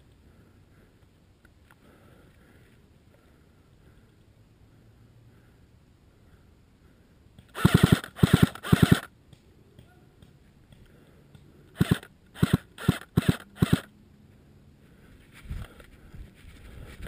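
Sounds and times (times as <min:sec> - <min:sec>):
airsoft rifle firing bursts: 0:07.5 - 0:09.1, 0:11.8 - 0:13.9.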